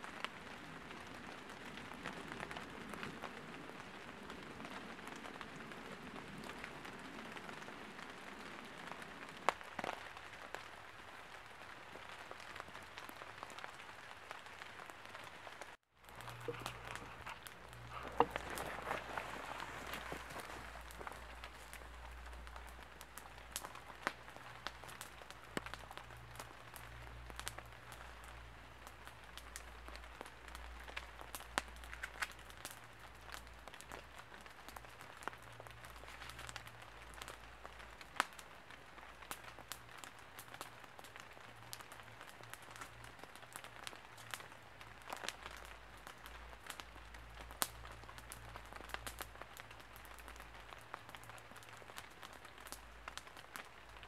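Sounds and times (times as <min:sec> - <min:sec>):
campfire crackling and popping: 0:00.0 - 0:54.0
soft fire hiss: 0:15.2 - 0:34.2.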